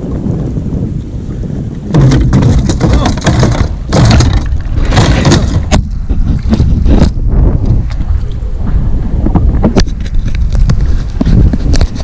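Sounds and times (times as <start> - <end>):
wind buffeting microphone: 0.0 - 12.0
person's voice: 2.8 - 3.4.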